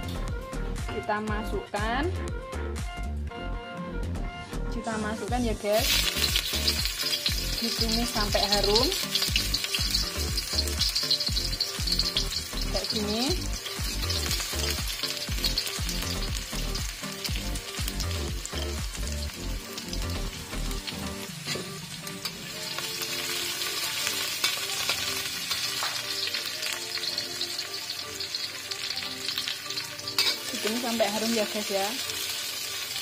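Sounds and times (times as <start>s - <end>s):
food sizzling in oil: 5.3s - 33.0s
metal spatula scraping wok: 21.3s - 31.6s.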